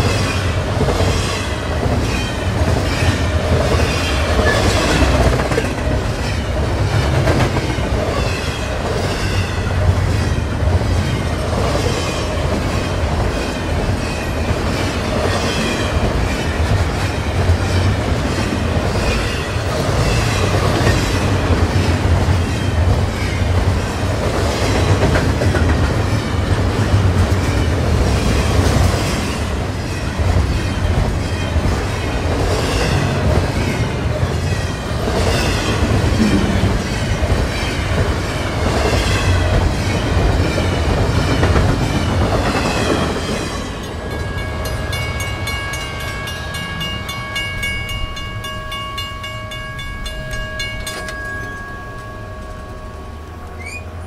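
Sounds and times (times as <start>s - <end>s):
train wheels clattering over rails: 0.0s - 44.3s
freight train rumbling past: 0.0s - 54.0s
level crossing warning bell: 43.7s - 54.0s.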